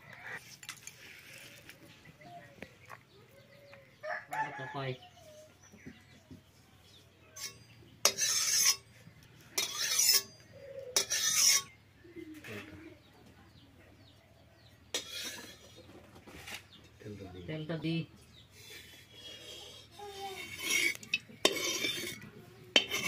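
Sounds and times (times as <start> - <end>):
metal pan scraping on clay: 7.4 - 8.9, 9.5 - 11.8, 14.9 - 16.6, 20.2 - 23.0.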